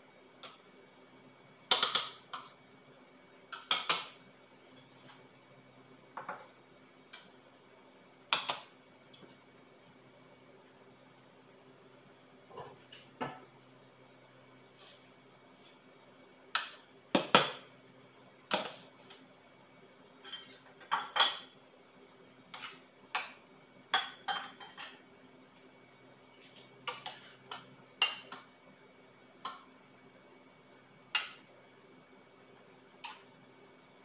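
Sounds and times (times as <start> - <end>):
faint hum: 0.0 - 34.0
utensils clinking against dishes: 20.2 - 21.6.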